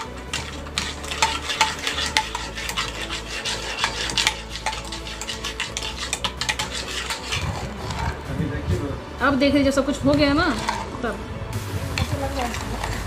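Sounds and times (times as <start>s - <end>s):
whisk clicking on metal bowl: 0.0s - 8.2s, 12.0s - 13.0s
whisk beating batter: 0.0s - 8.4s, 12.0s - 13.0s.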